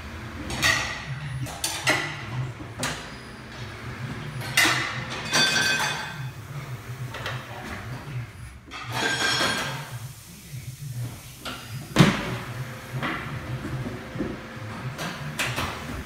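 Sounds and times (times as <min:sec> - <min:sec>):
metal clanks of tools: 0:04.4 - 0:06.2, 0:08.7 - 0:09.9.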